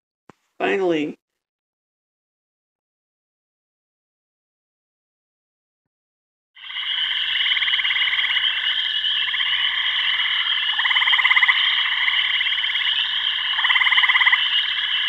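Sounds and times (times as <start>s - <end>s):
frogs trilling: 6.6s - 15.0s.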